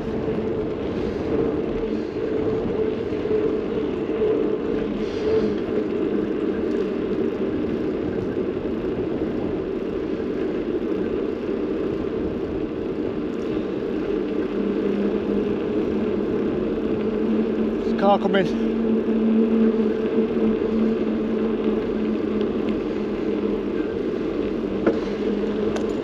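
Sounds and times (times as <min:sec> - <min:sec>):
bicycle tyres on road: 0:00.0 - 0:26.0
wind on microphone: 0:00.0 - 0:26.0.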